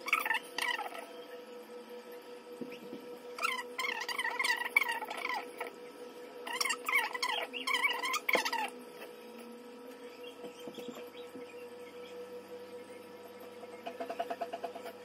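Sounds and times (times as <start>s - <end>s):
steady hum: 0.0s - 15.0s
high wavering voice-like sound: 6.4s - 8.7s.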